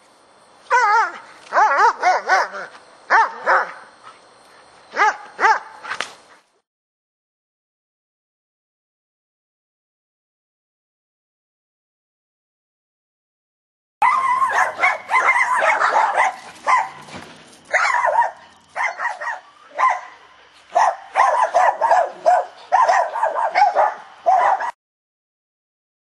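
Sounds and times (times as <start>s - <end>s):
dog barking rapidly: 0.7s - 3.9s, 5.0s - 5.8s, 14.0s - 17.1s, 17.7s - 24.8s.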